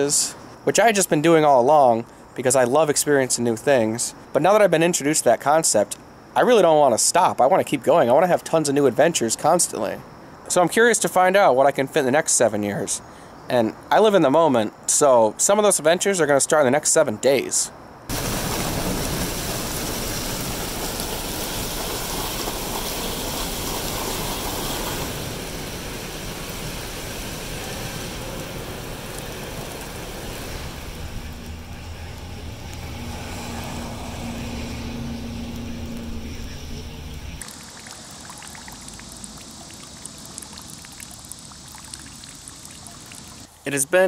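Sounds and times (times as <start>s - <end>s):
rain on wet street: 18.1s - 43.6s
water gushing onto pavement: 18.1s - 43.8s
water trickling and dripping: 18.1s - 43.8s.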